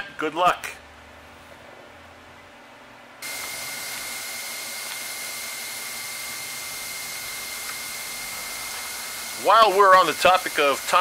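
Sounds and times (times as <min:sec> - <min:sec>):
bandsaw cutting metal: 0:03.2 - 0:11.0.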